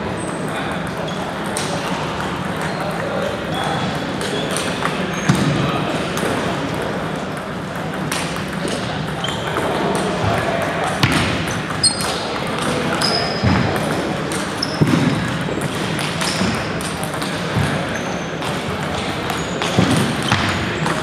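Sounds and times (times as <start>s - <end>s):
chatter of crowd: 0.0s - 21.0s
sneakers squeaking on gym floor: 3.5s - 5.6s, 9.2s - 9.7s, 11.0s - 15.4s, 17.5s - 21.0s
table tennis balls clicking: 6.2s - 21.0s.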